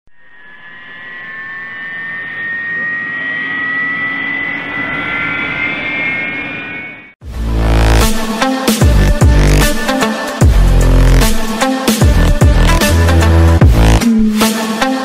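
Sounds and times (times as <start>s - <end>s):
jet engine spooling up: 0.2s - 7.2s.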